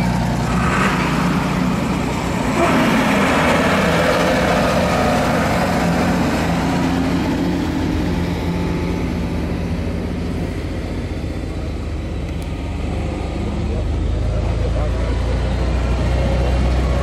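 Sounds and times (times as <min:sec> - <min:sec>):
armoured vehicle engine rumble: 0:00.0 - 0:17.0
truck diesel engine passing: 0:00.0 - 0:17.0.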